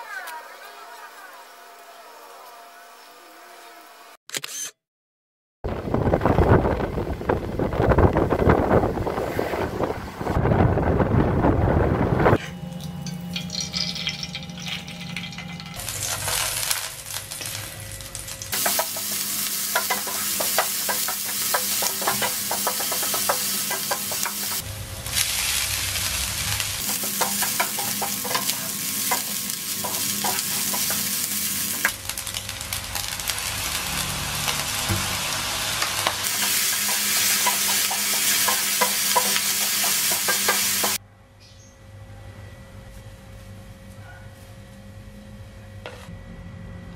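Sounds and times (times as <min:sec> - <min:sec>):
rice sizzling in a frying pan: 0:13.4 - 0:41.0.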